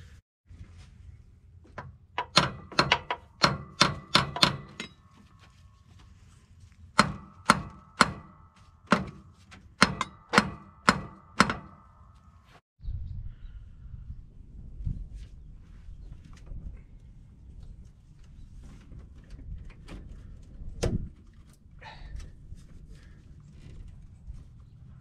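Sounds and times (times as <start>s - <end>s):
hammer striking metal: 2.2s - 5.1s, 7.0s - 9.2s, 9.8s - 12.2s.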